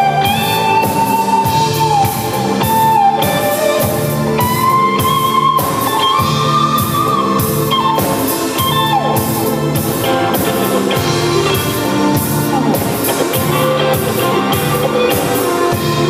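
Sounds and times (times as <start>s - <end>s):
bass guitar: 0.0s - 16.0s
drums steady beat: 0.0s - 16.0s
electric lead guitar bending notes: 0.0s - 16.0s.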